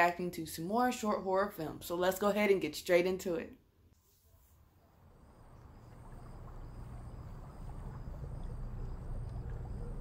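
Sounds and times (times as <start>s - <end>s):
low rumbling drone: 5.2s - 10.0s.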